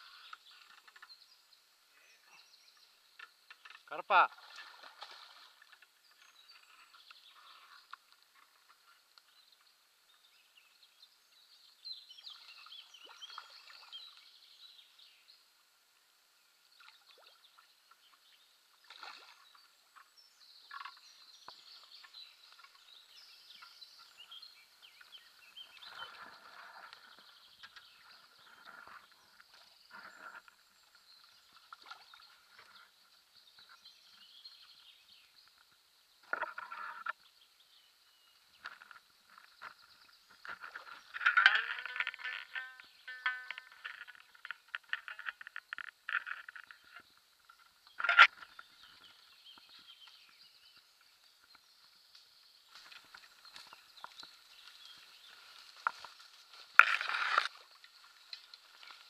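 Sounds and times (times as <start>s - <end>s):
rustles: 17.9s - 59.0s.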